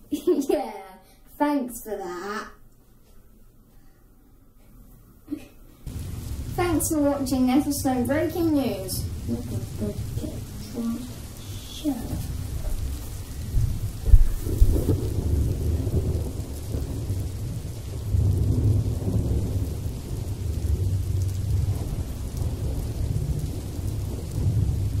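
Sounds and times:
low rolling thunder: 0:05.9 - 0:25.0
sharp thunder crack: 0:05.9 - 0:25.0.

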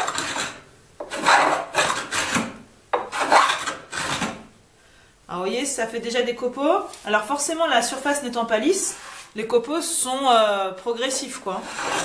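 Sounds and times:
hand plane scraping wood: 0:00.0 - 0:04.4, 0:08.9 - 0:09.3, 0:11.6 - 0:12.0.

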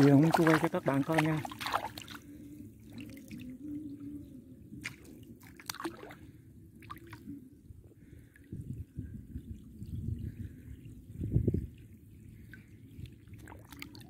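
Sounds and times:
water dripping and splashing: 0:00.0 - 0:02.3, 0:04.8 - 0:06.2, 0:12.4 - 0:14.0
wading through water sloshing: 0:00.0 - 0:10.9, 0:11.6 - 0:14.0.

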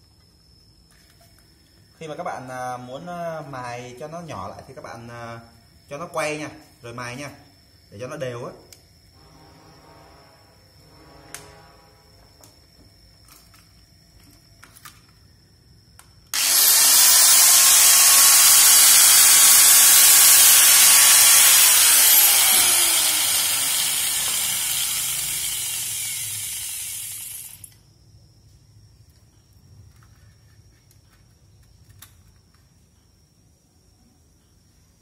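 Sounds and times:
electric grinder grinding metal: 0:16.4 - 0:27.7.

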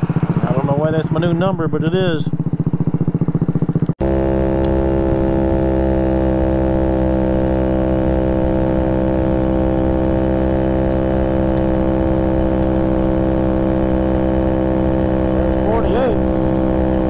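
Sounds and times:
scooter engine running flat out: 0:00.0 - 0:17.0.

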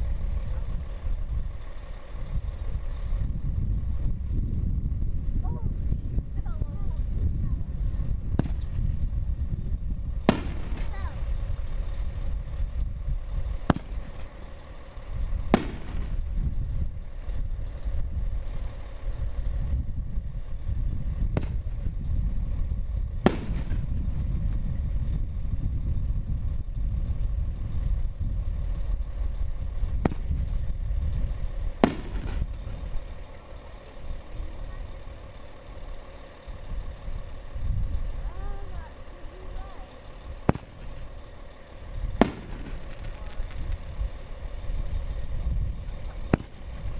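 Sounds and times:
low rumble: 0:00.0 - 0:46.9
firework shells bursting: 0:08.3 - 0:08.9, 0:10.2 - 0:12.0, 0:13.6 - 0:16.4, 0:23.2 - 0:24.0, 0:29.9 - 0:30.8, 0:31.6 - 0:36.3, 0:40.0 - 0:44.3, 0:45.9 - 0:46.9.

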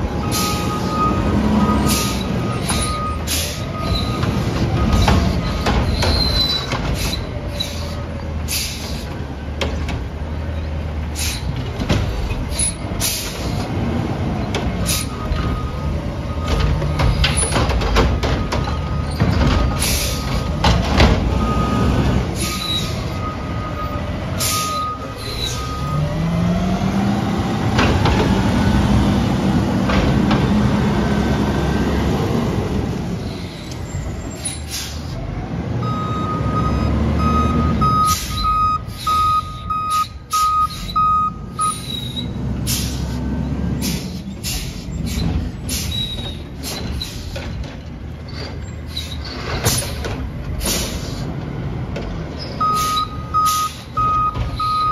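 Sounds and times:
garbage truck diesel engine: 0:00.0 - 0:54.9
backup alarm beeping: 0:35.8 - 0:41.9, 0:52.6 - 0:54.9.

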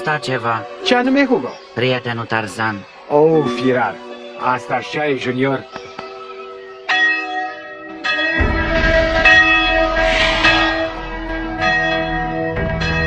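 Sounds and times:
large bell tolling: 0:06.9 - 0:13.0
low rumble: 0:08.8 - 0:11.6.

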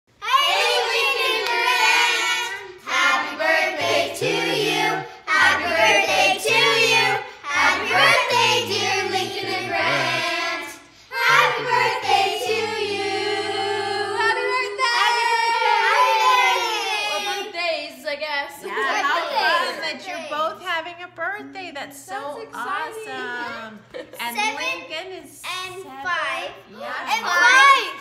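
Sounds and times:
children and women singing: 0:00.2 - 0:17.1.

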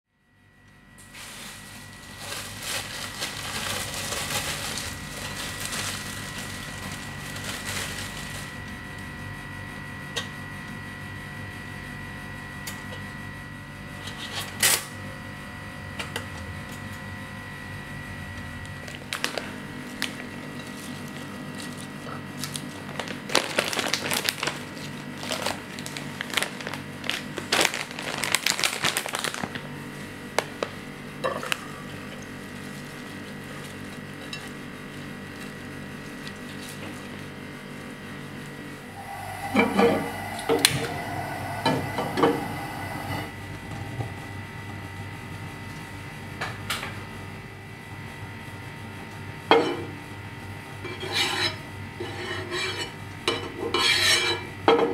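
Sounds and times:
faint hum with high tone: 0:00.1 - 0:54.9
salad leaves rustling: 0:01.0 - 0:08.9, 0:19.1 - 0:30.7, 0:32.4 - 0:38.0.

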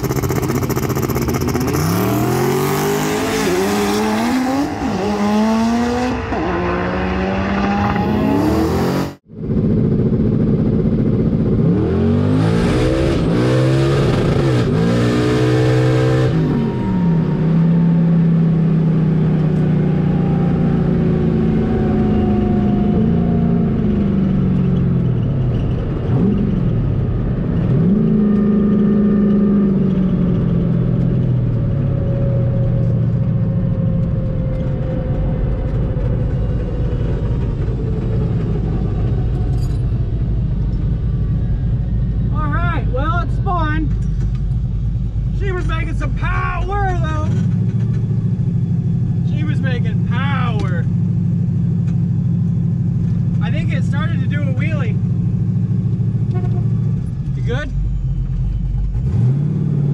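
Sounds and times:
turbocharged engine revving: 0:00.0 - 0:24.6, 0:58.8 - 0:59.9.

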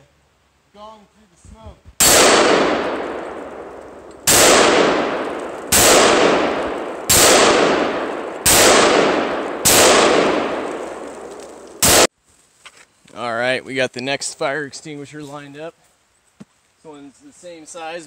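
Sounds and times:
rifle gunshots: 0:02.0 - 0:12.1.

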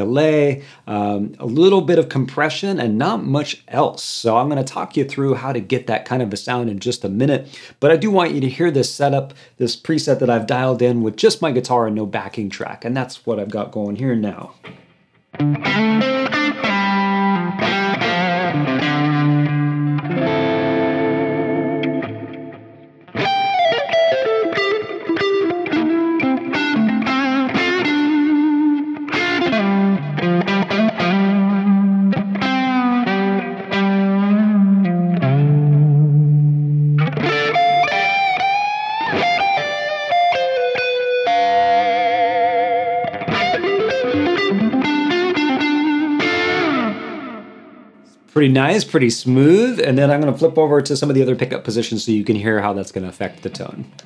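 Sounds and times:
electric guitar lead melody: 0:14.6 - 0:48.3.

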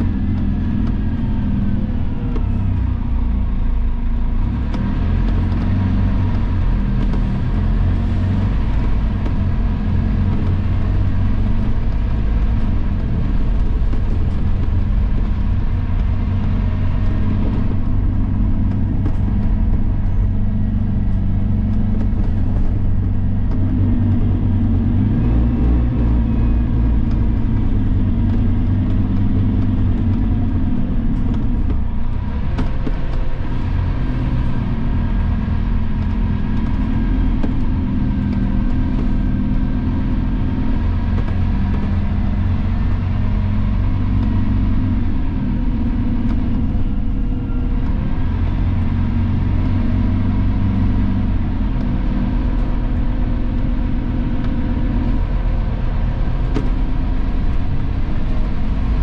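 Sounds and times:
bus engine drone: 0:00.0 - 0:59.0.

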